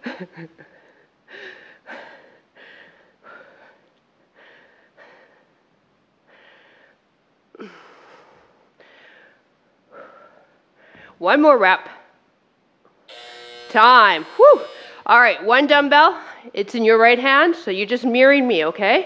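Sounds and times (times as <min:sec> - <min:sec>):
woman breathing hard: 0:00.6 - 0:11.2
woman sighing: 0:14.4 - 0:15.0.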